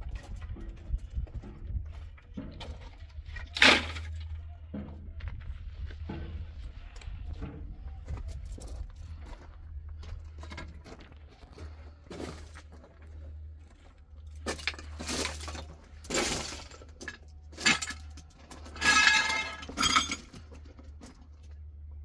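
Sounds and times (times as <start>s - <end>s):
hard objects clattering together: 14.4s - 21.1s.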